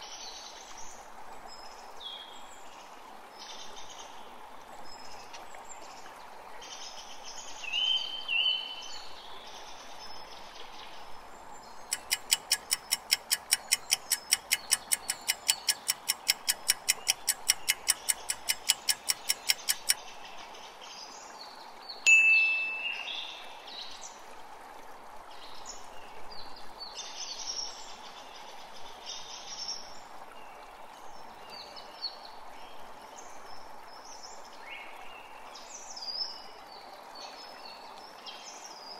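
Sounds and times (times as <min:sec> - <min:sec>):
birds chirping: 0:11.8 - 0:20.0, 0:22.1 - 0:23.4
fast even ticking: 0:11.9 - 0:20.0
sharp ringing note: 0:22.1 - 0:23.1.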